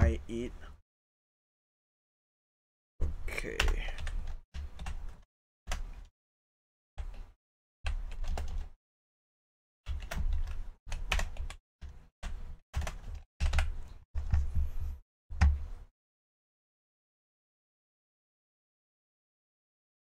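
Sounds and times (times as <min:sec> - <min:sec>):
keyboard typing: 0:03.4 - 0:06.1, 0:07.0 - 0:08.8, 0:09.9 - 0:11.6, 0:12.2 - 0:14.5.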